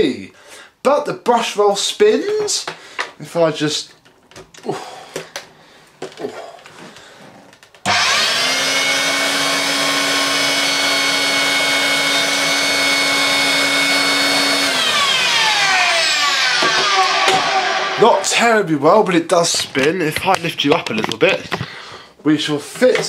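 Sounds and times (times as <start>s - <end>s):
vacuum cleaner motor whine: 7.9s - 18.0s.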